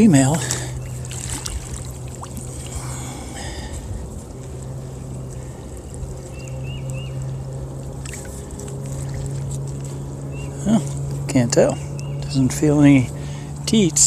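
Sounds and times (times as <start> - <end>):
water sloshing and trickling: 0.0 - 11.4
low hum: 0.0 - 14.0.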